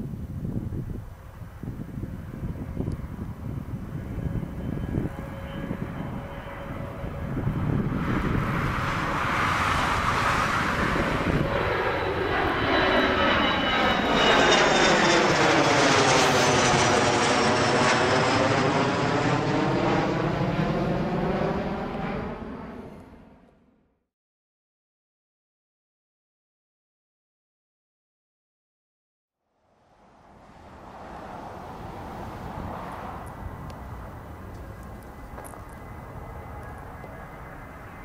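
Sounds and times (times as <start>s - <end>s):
high fan whine: 0.0s - 17.4s, 29.9s - 38.0s.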